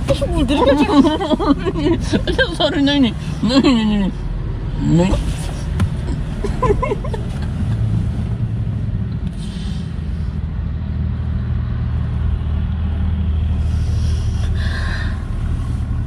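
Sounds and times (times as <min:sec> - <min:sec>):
car engine rumble: 0:00.0 - 0:16.0
road noise inside car: 0:00.0 - 0:16.0.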